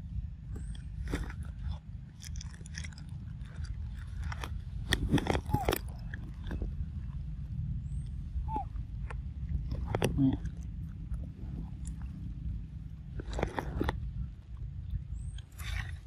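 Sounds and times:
low rumble: 0.0 - 16.0
monkey chewing wetly: 0.6 - 7.3, 7.9 - 12.6.

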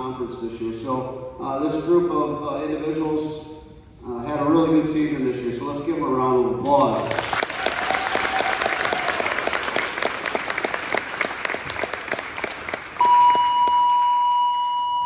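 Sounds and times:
audience applauding: 7.0 - 13.5
loud steady beep tone: 13.0 - 15.0.

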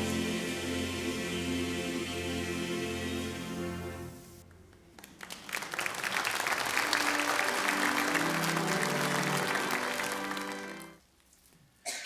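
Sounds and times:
choir singing: 0.0 - 4.4, 7.3 - 10.9
congregation applauding: 4.8 - 11.0
held instrumental notes: 7.0 - 11.0.

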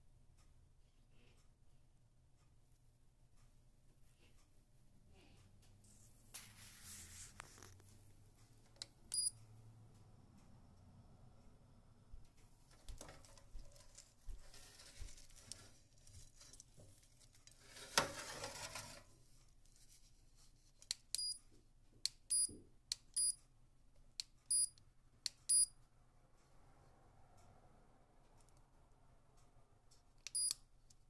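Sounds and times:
brief rustle: 5.8 - 8.0.

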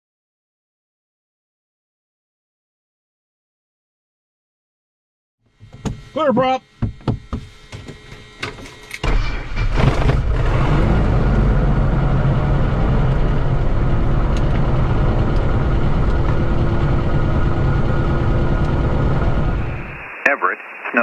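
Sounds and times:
aircraft engine starting and idling: 5.5 - 20.0.

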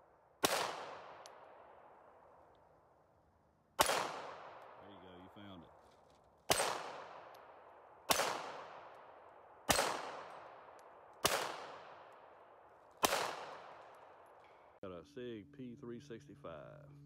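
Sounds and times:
handgun shots echoing: 0.4 - 2.1, 3.8 - 4.8, 6.5 - 14.7.

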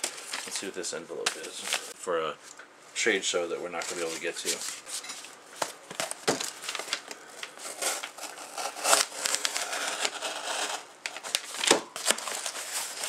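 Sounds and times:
knife slicing cardboard: 7.6 - 10.8.

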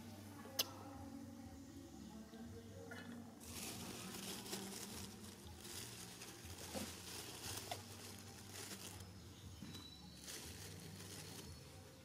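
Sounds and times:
dry leaves rustling: 3.4 - 12.0.

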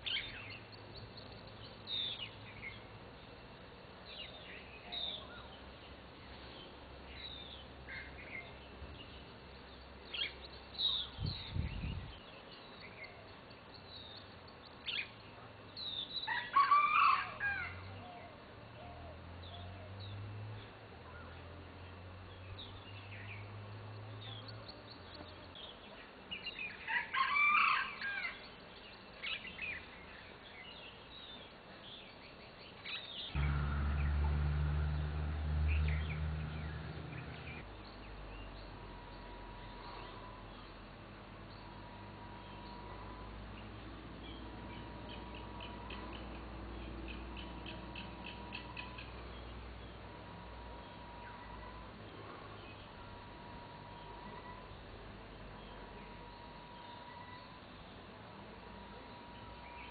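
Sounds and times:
birds chirping: 0.0 - 16.4, 28.3 - 59.9
loud bird calls: 32.8 - 40.7, 44.2 - 54.9.

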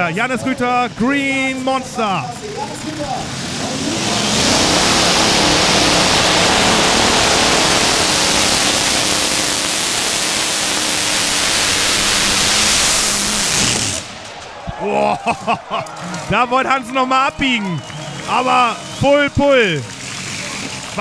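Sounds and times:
tractor engines roaring: 0.0 - 21.0.

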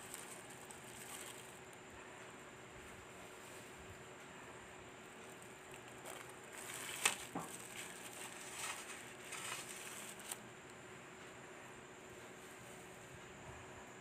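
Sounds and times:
plastic film crinkling: 0.0 - 1.8, 5.2 - 10.4.

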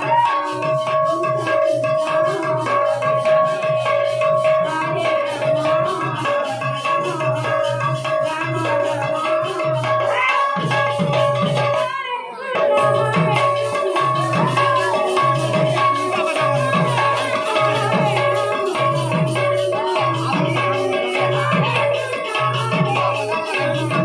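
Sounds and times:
rattling metallic percussion: 0.0 - 24.0
steady held tone: 12.5 - 24.0
drumming: 12.6 - 24.0.

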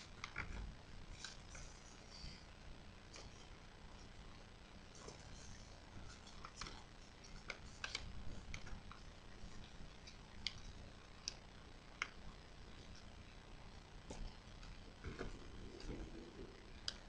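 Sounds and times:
sharp paper clicks: 0.0 - 2.3, 6.0 - 12.2
paper crackling while folded: 0.0 - 13.1.

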